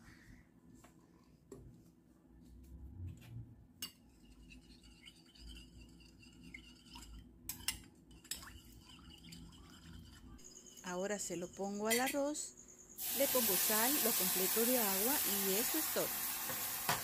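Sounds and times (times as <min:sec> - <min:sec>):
metal spoon scraping glass bowl: 0:03.8 - 0:12.4.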